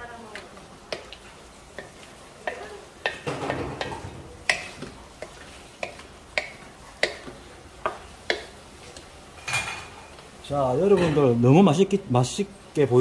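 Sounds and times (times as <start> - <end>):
food sizzling in a wok: 0.0 - 13.0
wooden spatula scraping a wok: 0.3 - 10.2.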